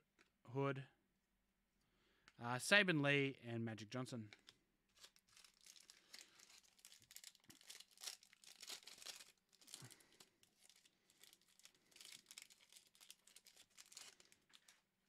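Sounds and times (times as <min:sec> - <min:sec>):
foil wrapper crinkling and tearing: 0:04.4 - 0:14.9.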